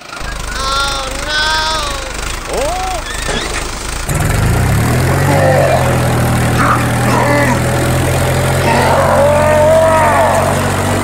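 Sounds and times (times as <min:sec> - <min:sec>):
brief warbling high sounds: 0:00.0 - 0:03.9
tractor engine idling: 0:00.0 - 0:11.0.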